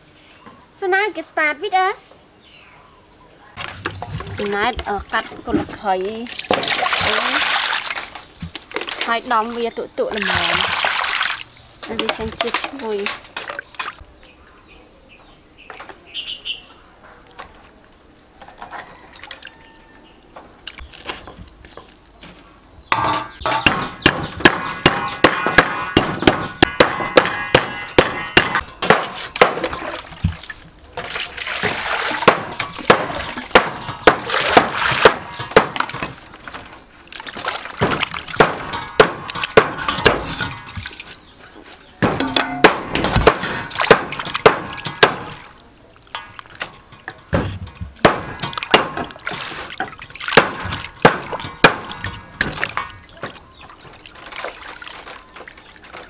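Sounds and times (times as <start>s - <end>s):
hands splashing water in metal bowl: 6.1s - 9.2s, 10.1s - 14.0s, 22.9s - 41.2s, 42.2s - 47.3s, 48.0s - 56.0s
sharp knocks and clatter: 11.8s - 14.0s, 22.9s - 41.0s, 42.0s - 45.5s, 46.1s - 54.4s.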